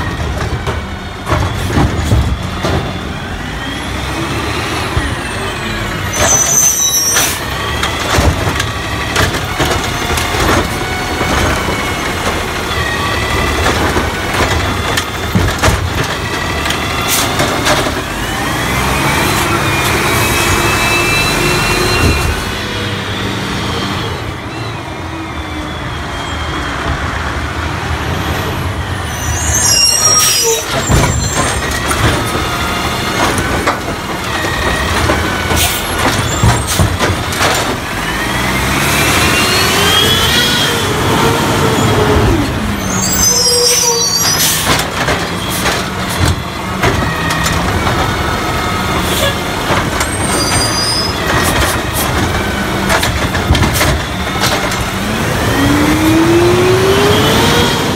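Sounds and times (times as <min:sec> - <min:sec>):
brake squeals: 0:00.0 - 0:27.4, 0:28.0 - 0:57.9
diesel engine revving: 0:00.0 - 0:57.9.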